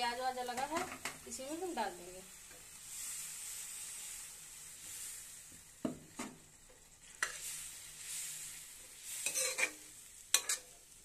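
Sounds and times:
vegetables sizzling in a pan: 0.0s - 11.0s
steel spatula scraping pan: 7.0s - 10.8s.

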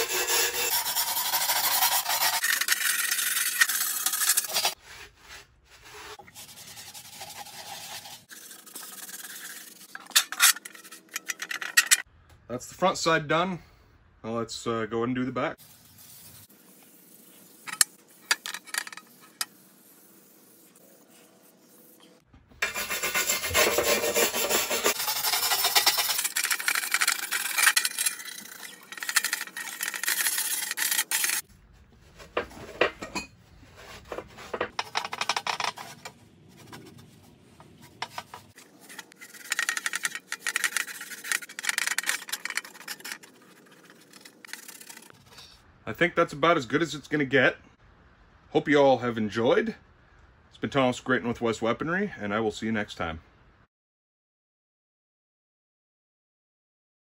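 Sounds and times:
wire brush scrubbing metal: 0.0s - 12.1s, 22.6s - 31.5s, 33.8s - 45.2s
cloth rubbing metal: 22.6s - 45.2s.

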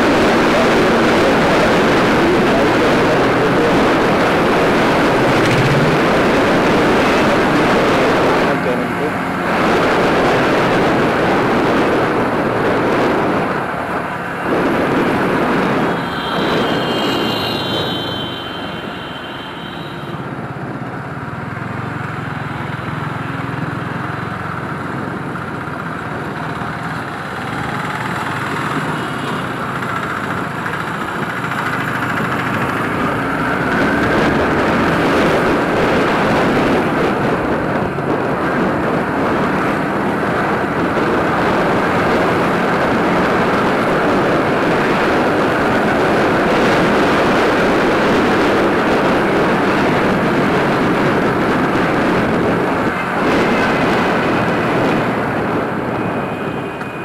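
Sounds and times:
wind on microphone: 0.0s - 19.2s, 24.8s - 57.0s
motorcycle engine running: 3.4s - 9.5s
high steady tone: 15.7s - 20.3s.

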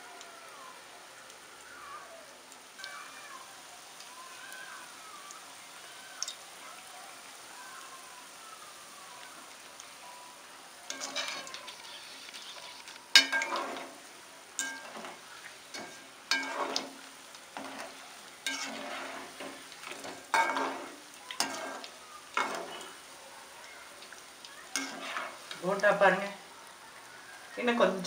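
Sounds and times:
deep-frying sizzle: 0.0s - 28.0s
metal ladle clinking: 13.2s - 13.9s, 14.6s - 17.0s, 17.6s - 23.0s.

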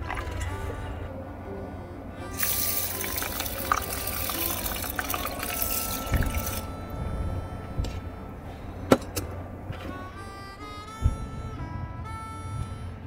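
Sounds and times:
water pouring into metal tin: 2.4s - 6.7s.

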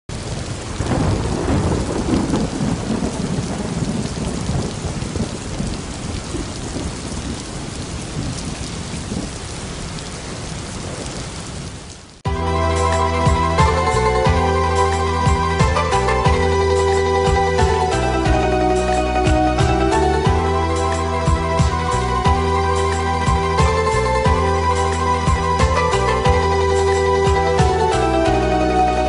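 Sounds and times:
thunder rumbling: 0.1s - 11.8s
heavy rain: 0.1s - 29.0s
music: 12.3s - 29.0s.

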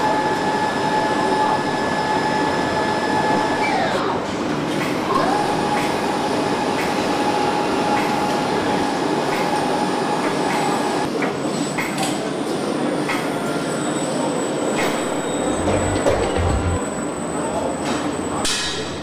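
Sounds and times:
industrial background noise: 0.0s - 19.0s
high whine: 15.0s - 18.4s.

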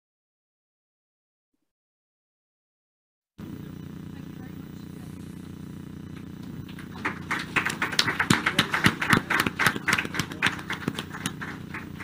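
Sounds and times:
low steady hum: 3.4s - 12.0s
small group clapping: 6.1s - 12.0s.

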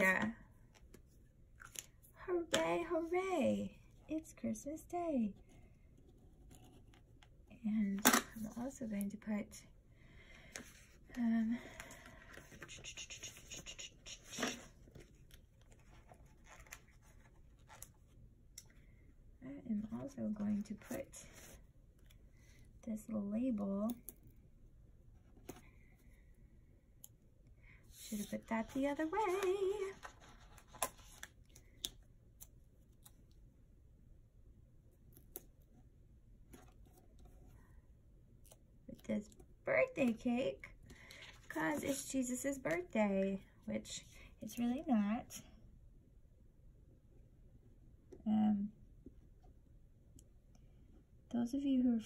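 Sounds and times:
paper rustling: 27.9s - 31.3s
paper crinkle: 28.0s - 31.6s.

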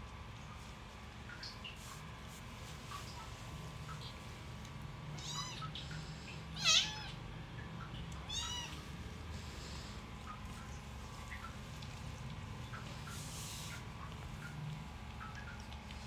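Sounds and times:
kittens mewing: 6.6s - 7.2s, 8.2s - 8.8s.

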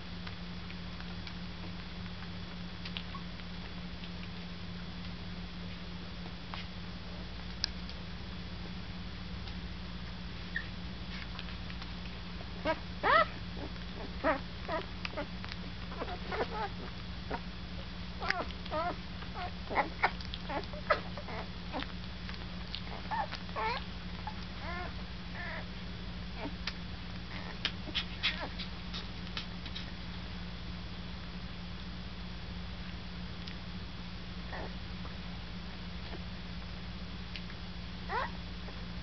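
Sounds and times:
puppies squeaking and whimpering: 12.6s - 15.3s, 15.9s - 17.4s, 18.2s - 21.9s, 22.8s - 25.7s, 26.4s - 26.6s, 27.3s - 28.6s, 38.1s - 38.3s.

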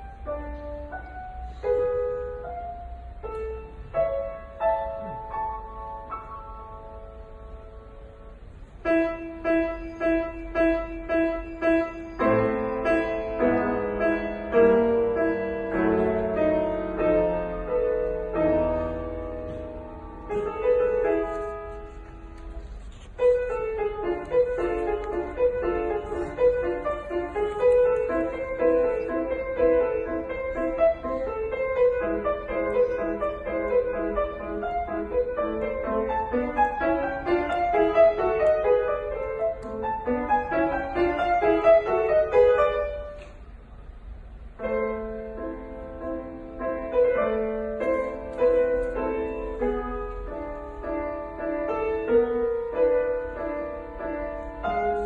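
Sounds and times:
solo piano classical music: 0.0s - 55.0s.

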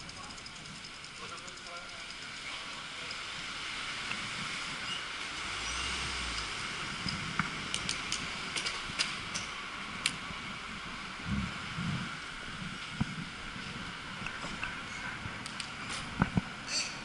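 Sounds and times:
sharp clicks and rattles: 0.0s - 3.2s, 6.4s - 10.2s
traffic noise: 0.0s - 17.0s
tyre and wind rush: 3.3s - 17.0s.

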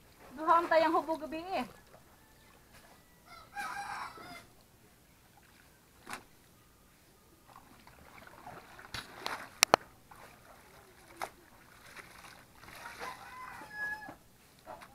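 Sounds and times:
clothes splashing in plastic basin: 0.0s - 2.0s, 5.4s - 6.4s, 7.5s - 14.9s
rooster crowing: 1.7s - 4.6s, 12.7s - 14.2s.

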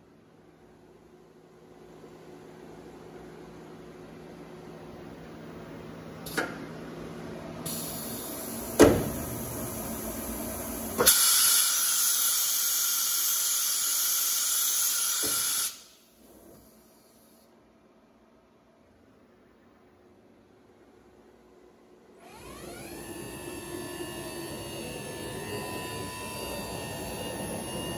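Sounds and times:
pneumatic clunk: 6.2s - 6.6s, 7.7s - 9.5s, 10.9s - 12.4s, 15.0s - 16.7s
compressed air blast: 11.0s - 16.1s.

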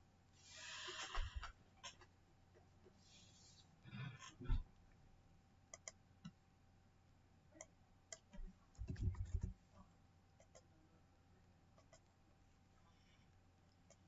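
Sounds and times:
faint small clicks: 5.7s - 6.4s.

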